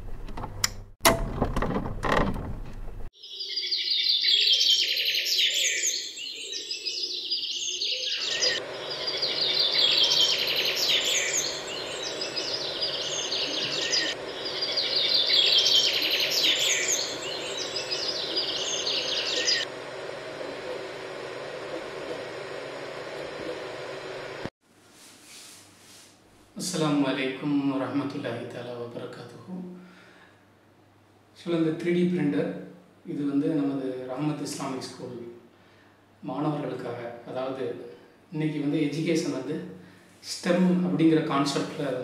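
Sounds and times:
small birds chirping: 0:03.2 - 0:19.7
printer fans and motors humming: 0:08.2 - 0:24.5.

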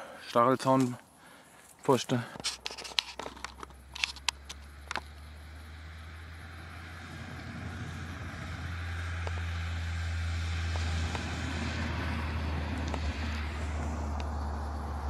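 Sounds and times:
car driving past: 0:03.8 - 0:15.0.

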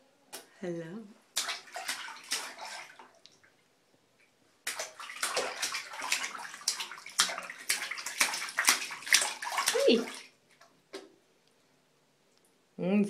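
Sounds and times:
baby splashing water: 0:01.3 - 0:03.5, 0:04.6 - 0:10.7.

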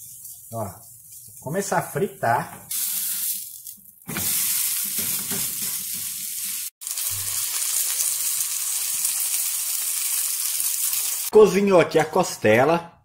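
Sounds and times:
hamburger patty sizzling in a pan: 0:04.1 - 0:11.3.

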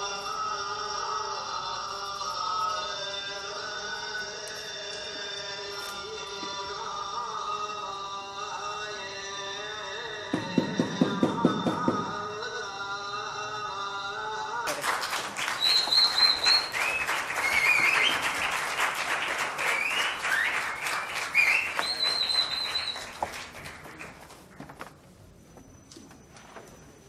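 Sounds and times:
audience applauding: 0:14.7 - 0:24.5
whistles: 0:15.4 - 0:24.1.

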